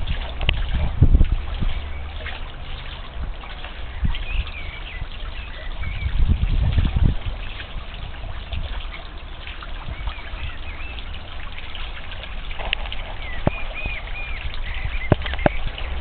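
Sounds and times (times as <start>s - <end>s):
fountain trickling into pond: 0.0s - 16.0s
high bird chirps: 3.9s - 6.2s, 13.1s - 15.7s.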